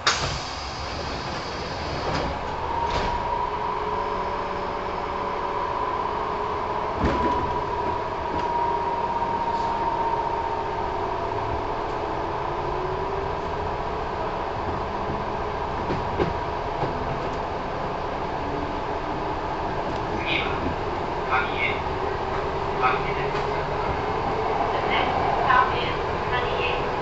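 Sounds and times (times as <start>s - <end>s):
train doors shutting: 0.0s - 13.6s, 14.6s - 27.0s
train motor whine: 0.0s - 18.6s
train car rumble: 0.0s - 27.0s.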